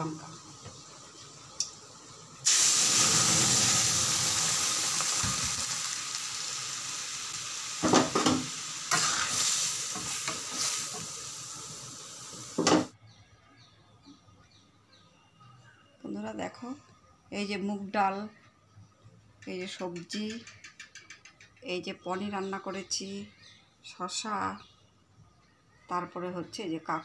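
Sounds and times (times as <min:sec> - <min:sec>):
hot oil sizzling in a wok: 0:00.0 - 0:13.0.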